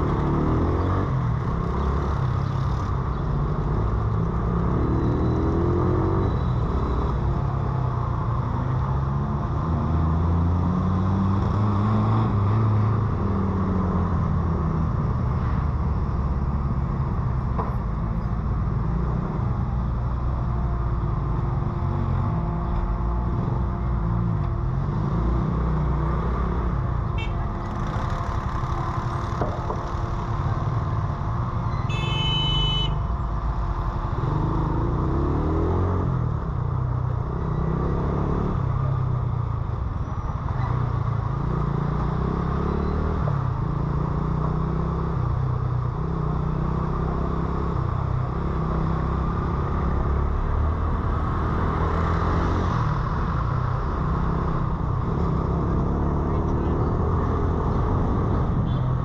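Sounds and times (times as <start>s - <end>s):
car horn toot: 27.2s - 27.4s, 31.9s - 33.1s.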